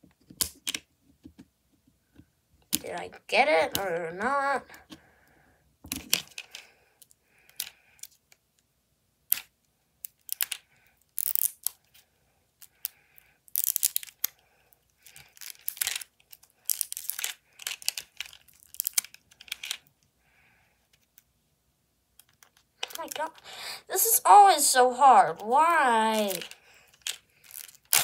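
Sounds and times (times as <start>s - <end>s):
plastic wrapping crinkling and tearing: 13.5s - 14.4s, 15.1s - 19.8s, 26.1s - 28.0s.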